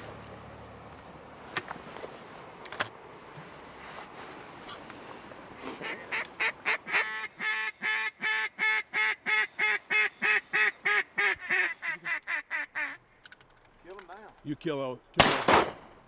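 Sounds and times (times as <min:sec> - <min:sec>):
duck call quacks: 0:05.8 - 0:13.0.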